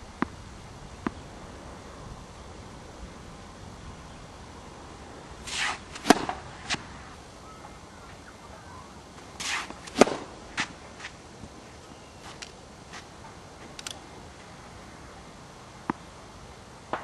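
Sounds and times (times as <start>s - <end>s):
racket hitting tennis ball: 5.4s - 7.1s, 9.4s - 11.2s
racket swishing: 5.4s - 7.1s, 9.4s - 11.2s
ball pops: 5.5s - 6.9s, 9.4s - 10.3s.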